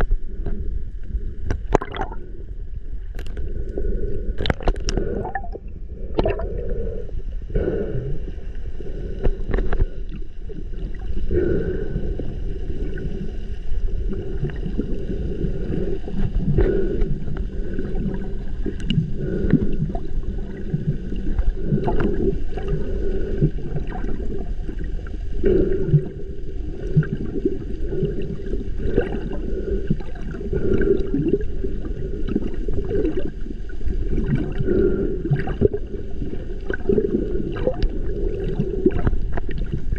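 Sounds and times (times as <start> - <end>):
water gurgling: 0.0 - 3.7, 4.4 - 39.9
underwater low rumble: 0.0 - 39.9.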